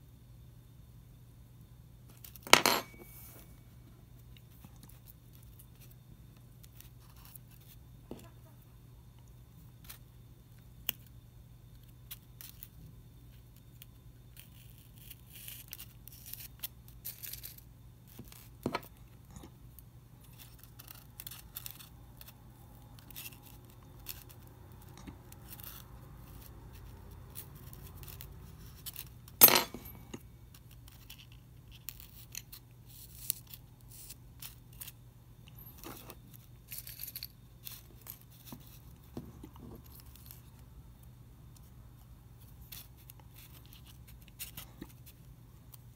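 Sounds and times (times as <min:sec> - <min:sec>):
faint low hum: 0:00.0 - 0:45.9
small clicks and scrapes: 0:10.8 - 0:45.9.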